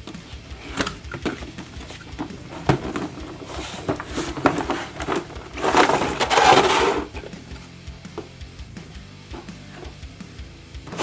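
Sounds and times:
cardboard box being handled: 0.8 - 7.2.

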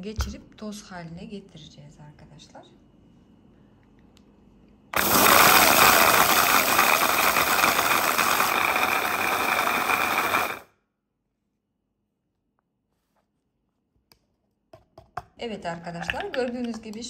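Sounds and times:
blender blade grinding: 5.0 - 10.7.

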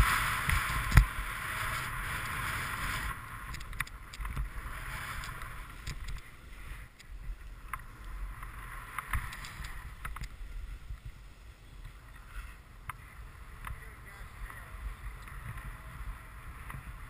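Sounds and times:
snowboard scraping over snow: 0.0 - 17.0
wind rumbling on microphone: 0.0 - 17.0
sharp clicks: 3.5 - 4.4, 9.0 - 10.4.

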